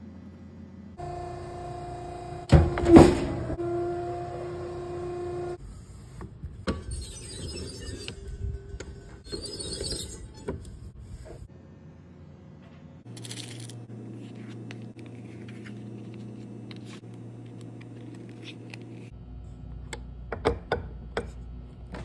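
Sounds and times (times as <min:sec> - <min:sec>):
steady low hum: 0:10.6 - 0:22.0.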